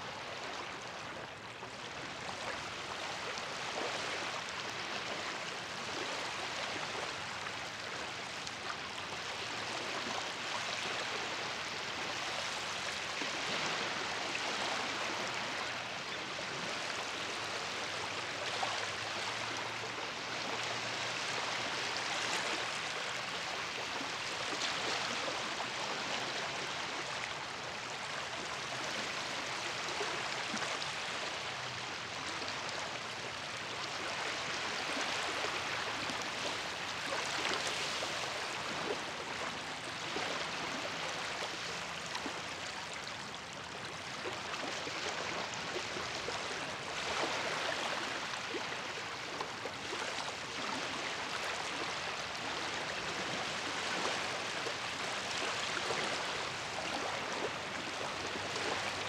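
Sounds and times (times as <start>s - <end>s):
small waves lapping at shore: 0.0s - 59.0s.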